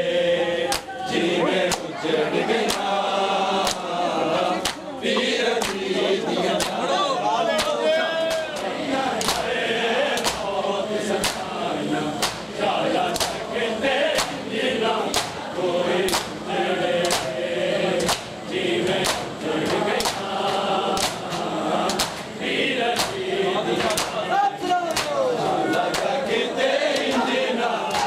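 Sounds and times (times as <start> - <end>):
men chanting in chorus: 0.0 - 28.0
unison chest-beating slaps: 1.7 - 1.9, 2.6 - 2.9, 3.6 - 3.9, 4.6 - 4.8, 5.6 - 5.8, 7.6 - 9.5, 10.1 - 10.5, 11.2 - 11.6, 12.2 - 12.5, 13.1 - 13.4, 14.1 - 14.4, 15.1 - 15.4, 16.0 - 16.4, 17.0 - 17.4, 18.0 - 22.3, 22.9 - 23.2, 23.8 - 24.2, 24.9 - 26.2.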